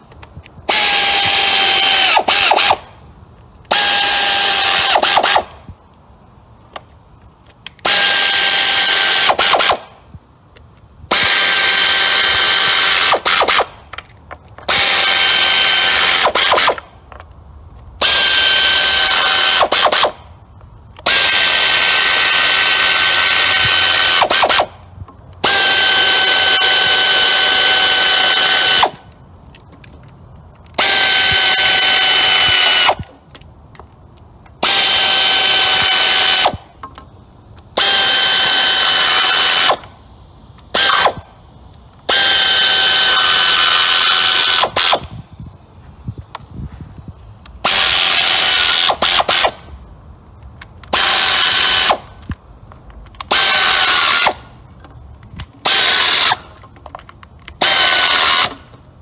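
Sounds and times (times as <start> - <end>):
air ratchet whine: 18.0 - 20.2, 21.0 - 24.7, 25.4 - 29.0, 34.6 - 36.6, 37.8 - 41.4, 42.0 - 45.3, 47.6 - 49.6, 53.3 - 54.4, 57.6 - 58.6.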